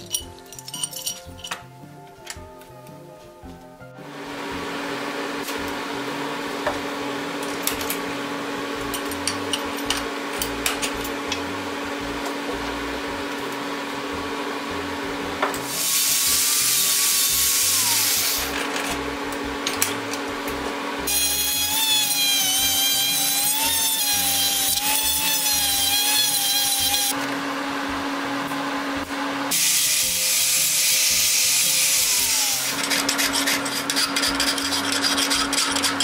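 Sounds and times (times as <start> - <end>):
rotary tool grinding metal: 21.1 - 27.2, 29.5 - 36.0.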